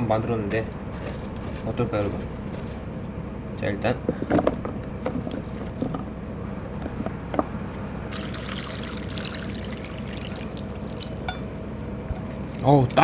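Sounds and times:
liquid pouring: 8.1 - 11.8.

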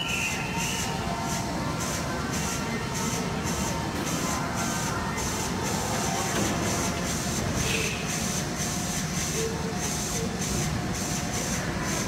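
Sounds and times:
electric train humming: 0.0 - 8.3
echoing station background: 0.0 - 10.0.

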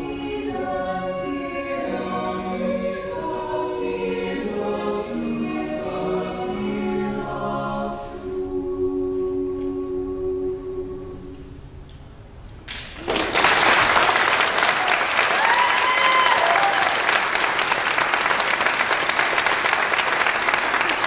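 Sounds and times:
a cappella vocal chord: 0.0 - 11.8
audience applause: 12.7 - 21.0
person whooping: 14.9 - 17.0.

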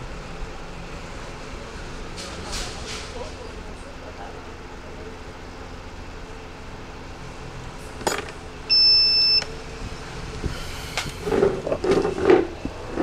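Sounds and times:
high-pitched electronic beep: 8.7 - 9.5.

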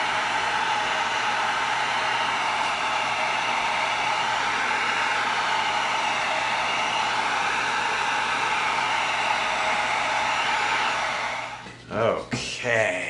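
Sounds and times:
heat gun blowing hot air: 0.0 - 11.7.

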